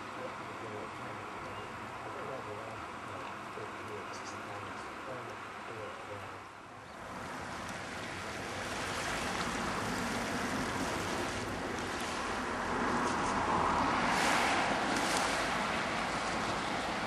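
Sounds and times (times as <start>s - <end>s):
surf washing onto rocky shore: 7.0s - 17.0s.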